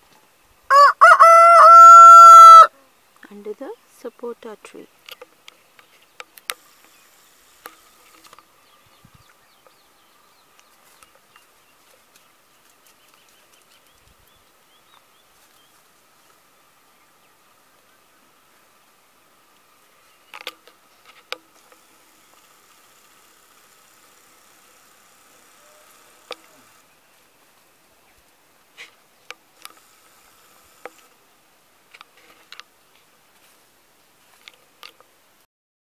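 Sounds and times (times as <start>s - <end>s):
chickens foraging in dry leaves: 0.0s - 35.4s
faint steady hiss: 0.0s - 35.5s
insect drone: 4.9s - 10.7s, 19.8s - 27.1s, 29.4s - 32.7s
sharp clicks: 26.2s - 26.8s.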